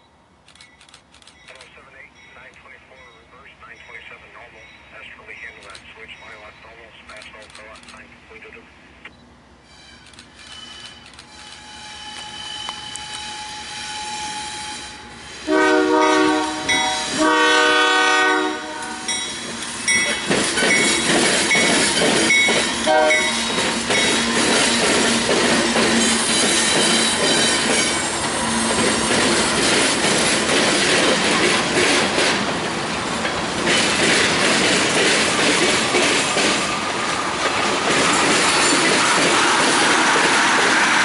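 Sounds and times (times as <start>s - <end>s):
wheel squeal: 9.6s - 15.0s
locomotive horn blasts: 11.6s - 19.2s, 22.8s - 23.4s
train wheels clattering on rails: 19.1s - 41.0s.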